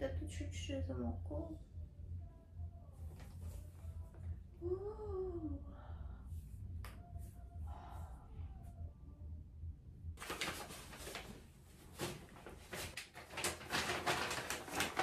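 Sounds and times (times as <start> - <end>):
low hum: 0.0 - 10.2
paper bags rustling and crinkling: 10.2 - 15.0.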